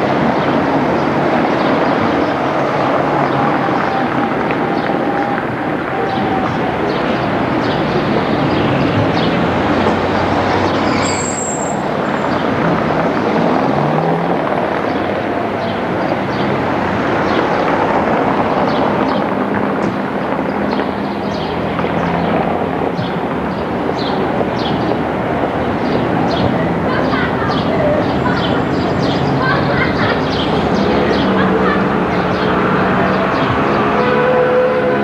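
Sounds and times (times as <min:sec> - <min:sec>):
passing car traffic: 0:00.0 - 0:35.0
tram rolling on track: 0:00.0 - 0:35.0
high wheel squeal: 0:10.7 - 0:12.3.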